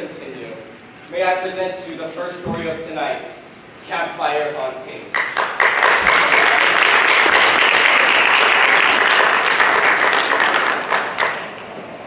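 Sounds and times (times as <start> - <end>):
audience applauding: 5.1 - 11.8.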